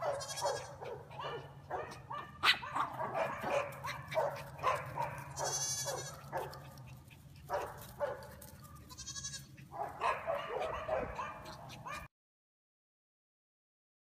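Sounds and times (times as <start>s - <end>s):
goat kid bleating: 0.0s - 0.8s, 5.3s - 6.3s, 8.6s - 9.6s
small dog yapping: 0.0s - 12.1s.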